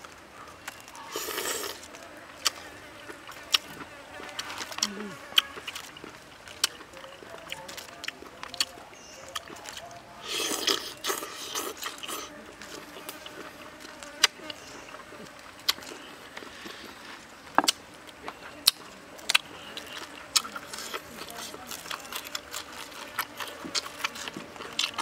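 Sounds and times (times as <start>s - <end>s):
person chewing: 0.6s - 25.0s
person slurping: 1.0s - 1.9s, 10.2s - 12.3s.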